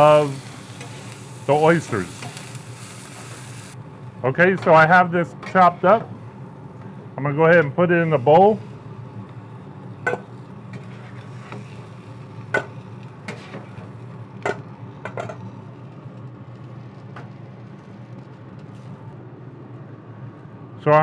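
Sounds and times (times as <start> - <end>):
steady low hum: 0.0 - 21.0
metal spatulas scraping griddle: 10.7 - 12.0, 13.3 - 13.9.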